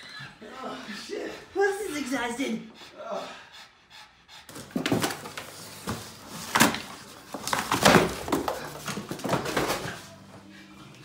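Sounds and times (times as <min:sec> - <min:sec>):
dog tearing cardboard box: 0:04.5 - 0:10.0
cardboard scraping on floor: 0:04.5 - 0:10.2.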